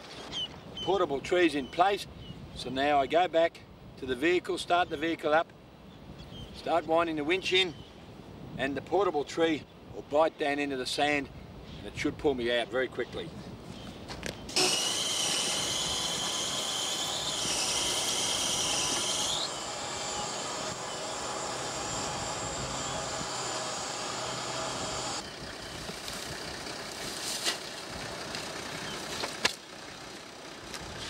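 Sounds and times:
winch whining with a hiss: 0:14.5 - 0:25.2.

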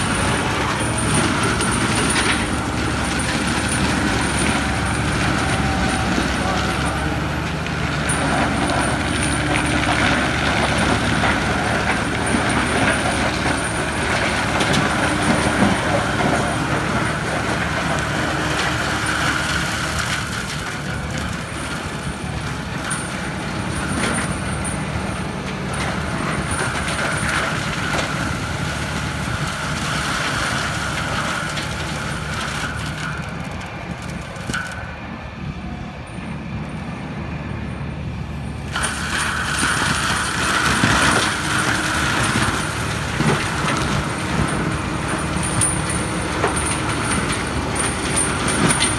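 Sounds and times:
forestry mulcher shredding trees: 0:00.0 - 0:48.9
tractor diesel engine under load: 0:00.0 - 0:48.9
wood cracking: 0:31.1 - 0:34.8.

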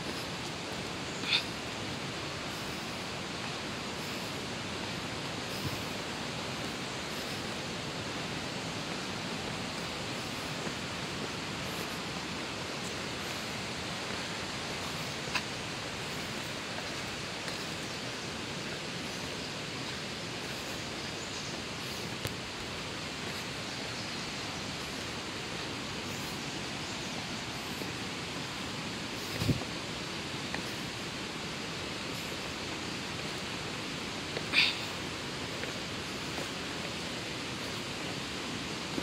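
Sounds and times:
steady outdoor rushing noise: 0:00.0 - 0:39.0.

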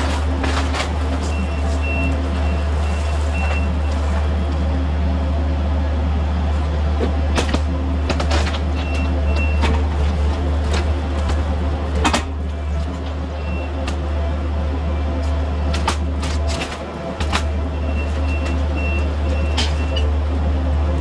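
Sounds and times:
wood cracking and breaking: 0:00.0 - 0:04.1
diesel engine running: 0:00.0 - 0:21.0.

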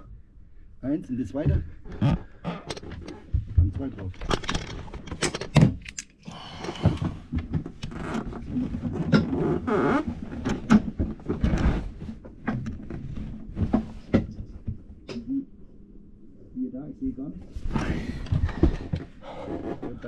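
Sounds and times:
knocks and clunks from handling: 0:10.2 - 0:15.2.

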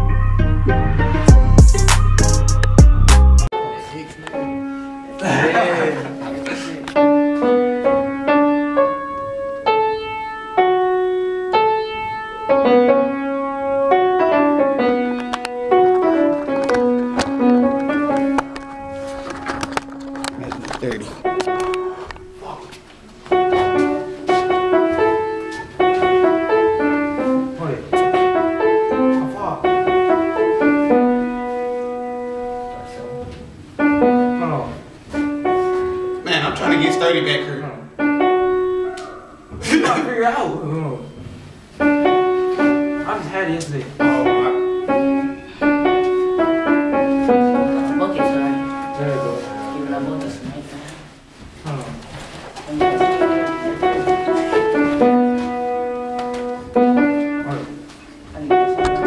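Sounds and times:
upright piano melody: 0:00.0 - 0:40.2, 0:41.6 - 0:50.6, 0:52.7 - 0:59.0.

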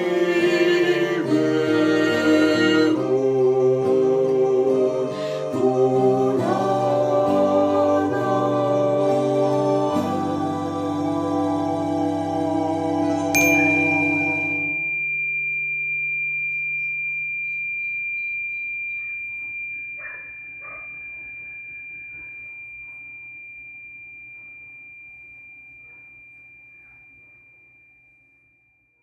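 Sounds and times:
guitar and voice chord: 0:00.0 - 0:15.0
metal chime bar ringing: 0:13.4 - 0:28.6.

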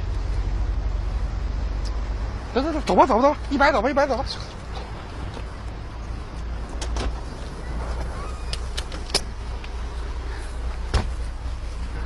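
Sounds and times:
street traffic rumble: 0:00.0 - 0:12.0
clicks and knocks around a car: 0:04.6 - 0:09.9, 0:10.6 - 0:12.0.

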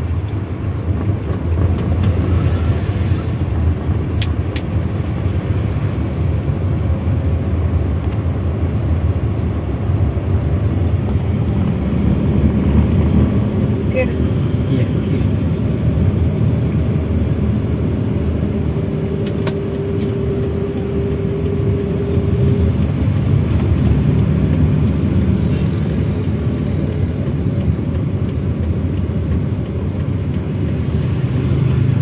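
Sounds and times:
car engine and tyre rumble: 0:00.0 - 0:32.0
steady tone: 0:17.7 - 0:28.7.

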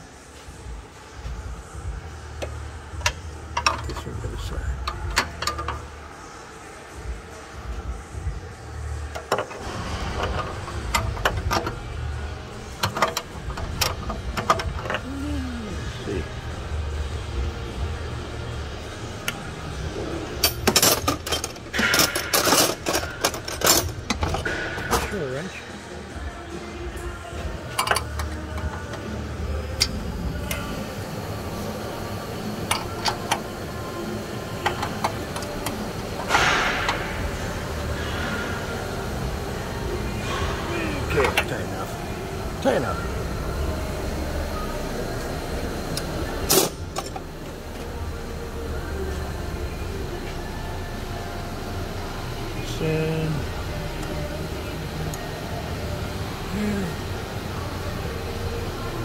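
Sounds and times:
low workshop rumble: 0:00.0 - 0:59.0
wrench clinking against metal: 0:27.7 - 0:29.0.

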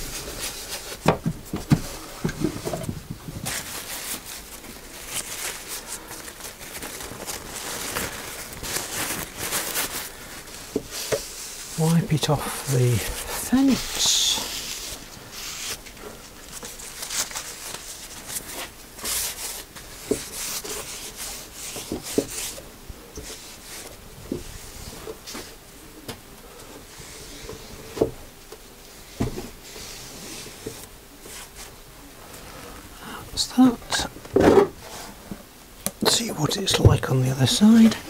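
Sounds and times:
cloth rubbing on wooden board: 0:00.0 - 0:15.8, 0:16.8 - 0:22.6.

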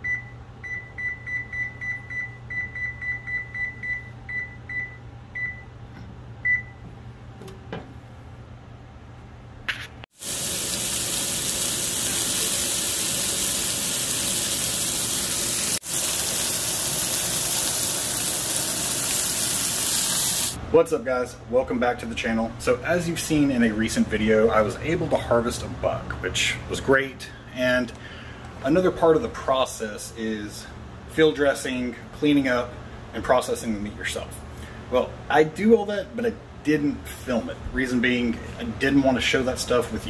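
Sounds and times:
oven control panel beeps: 0:00.0 - 0:05.8, 0:06.4 - 0:06.8
meat sizzling in hot oil: 0:10.1 - 0:20.6.

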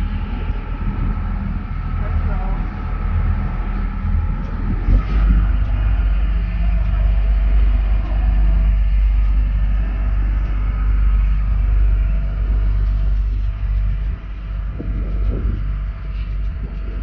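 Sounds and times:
outboard engine rumbling: 0:00.0 - 0:17.0.

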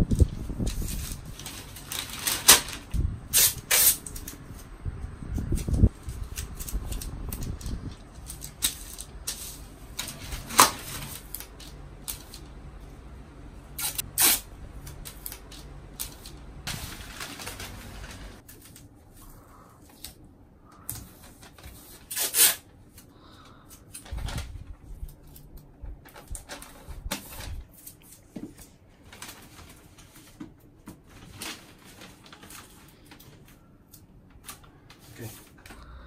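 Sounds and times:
newspaper rustling and crinkling: 0:00.0 - 0:04.7, 0:05.4 - 0:12.5, 0:13.9 - 0:20.2, 0:23.8 - 0:33.7
sharp crackles of tape: 0:00.0 - 0:04.7, 0:05.4 - 0:12.5, 0:13.8 - 0:18.9, 0:21.4 - 0:22.7.

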